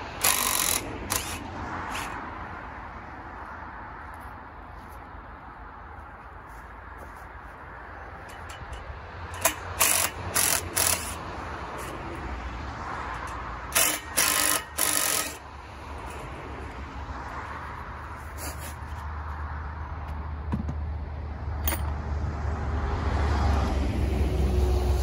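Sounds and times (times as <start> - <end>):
cordless drill short bursts: 0.2 - 2.2, 9.4 - 11.2, 13.7 - 15.4.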